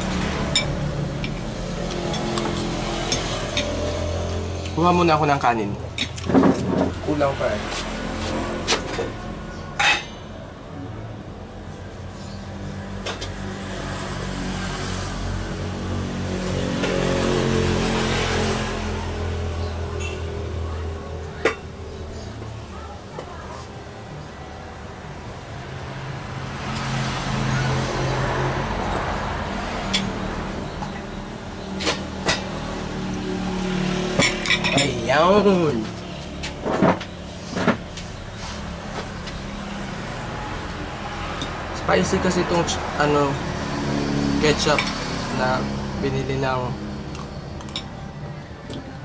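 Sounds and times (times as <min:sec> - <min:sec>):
vehicle passing: 0:00.0 - 0:09.8, 0:10.5 - 0:49.0.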